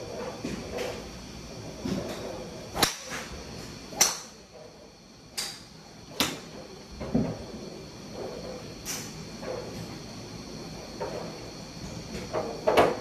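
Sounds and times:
golf drivers striking balls: 0:02.8 - 0:03.3, 0:03.9 - 0:04.4.

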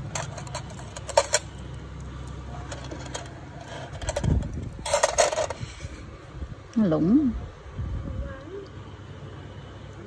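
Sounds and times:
metal instruments clinking on tray: 0:00.0 - 0:01.6.

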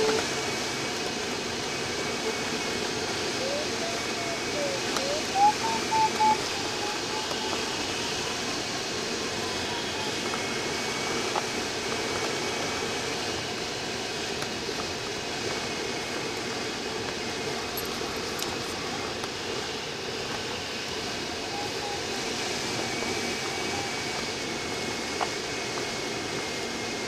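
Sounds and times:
faint electronic tone: 0:03.3 - 0:10.3, 0:21.2 - 0:24.3
rising electronic beeps: 0:03.4 - 0:08.4.

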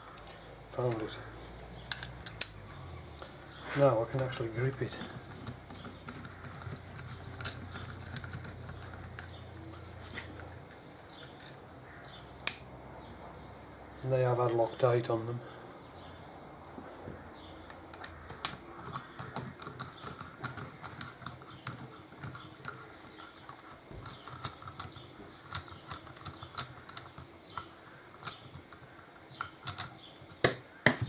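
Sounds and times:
loud metal clicks: 0:01.7 - 0:03.4, 0:04.1 - 0:09.9, 0:17.6 - 0:31.0.

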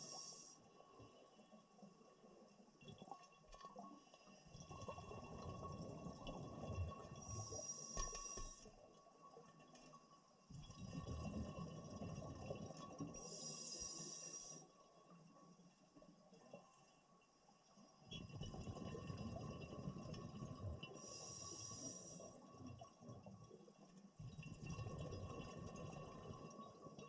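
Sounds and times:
diver breathing through a regulator: 0:00.0 - 0:00.6, 0:07.2 - 0:08.7, 0:13.2 - 0:14.7, 0:21.0 - 0:22.4.

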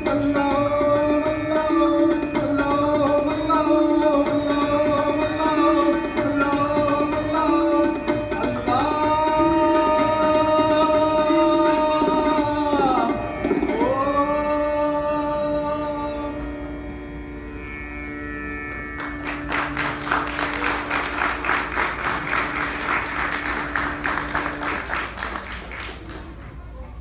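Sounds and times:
man singing: 0:00.0 - 0:16.6
harmonium note: 0:00.0 - 0:25.2
audience applause: 0:19.0 - 0:26.8.

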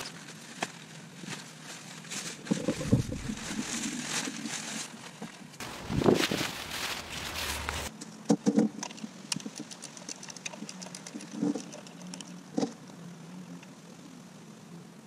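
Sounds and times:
nylon cover rustling: 0:00.0 - 0:07.9.

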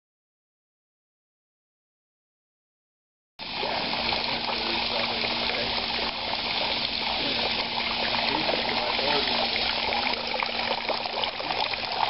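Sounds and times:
fountain water splashing: 0:03.4 - 0:12.0.

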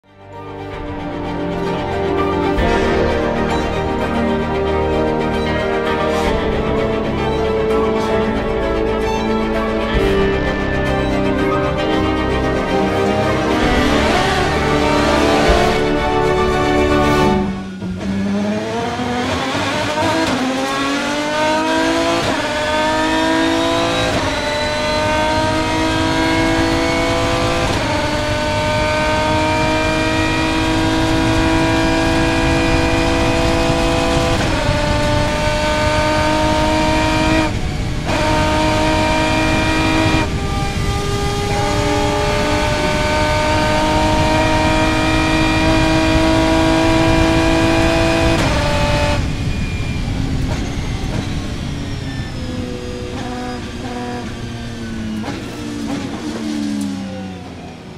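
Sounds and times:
racing car engine at full throttle: 0:00.0 - 0:57.9.

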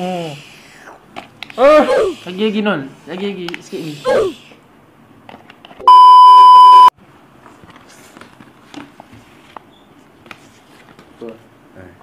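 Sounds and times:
electronic censor bleep: 0:05.8 - 0:06.9
faint clicks and rustles: 0:07.3 - 0:11.4.

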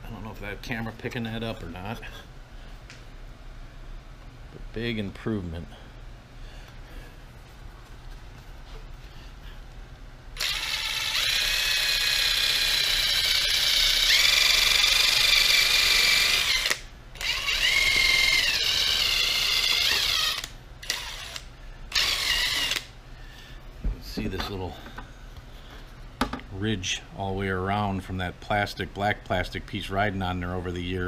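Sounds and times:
drill motor whine: 0:10.4 - 0:22.9.

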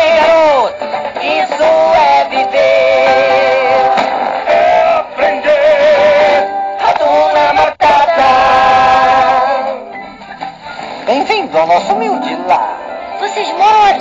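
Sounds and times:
voices singing with vibrato: 0:00.0 - 0:10.1
backing music: 0:00.0 - 0:14.0.

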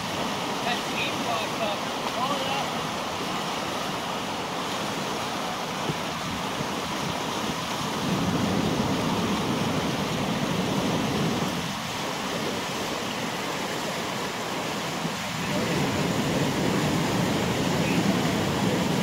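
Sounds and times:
rapids roaring: 0:00.0 - 0:19.0.

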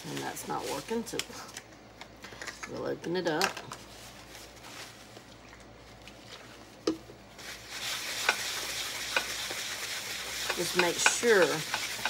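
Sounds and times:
paper towel rubbing a plate: 0:07.4 - 0:12.0.

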